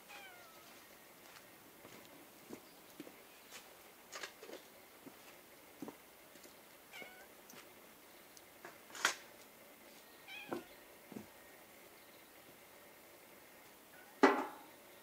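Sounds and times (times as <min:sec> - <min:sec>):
cat meowing: 0:00.0 - 0:00.7, 0:06.9 - 0:07.3, 0:10.2 - 0:10.7.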